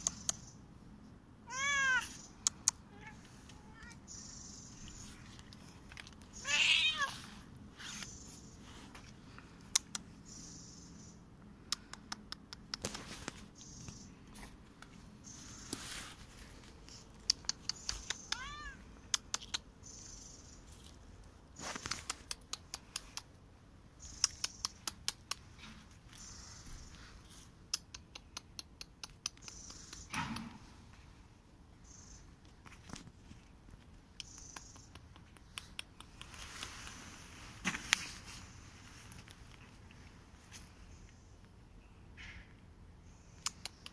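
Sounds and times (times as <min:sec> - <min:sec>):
cat meowing: 0:01.4 - 0:02.2, 0:02.9 - 0:04.1, 0:06.4 - 0:07.3, 0:18.3 - 0:18.8
clicks and rustles of cat moving: 0:04.8 - 0:06.4, 0:11.8 - 0:19.7, 0:20.7 - 0:23.3, 0:32.4 - 0:40.8.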